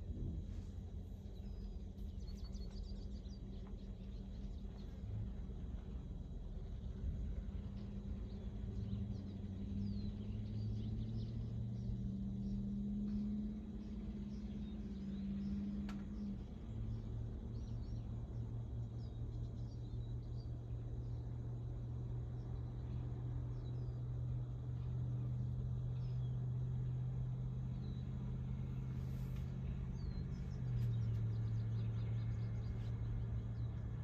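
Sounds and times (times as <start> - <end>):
low motor hum: 0.0 - 34.0
faint bird chirps: 0.3 - 5.1
faint click: 15.8 - 16.2.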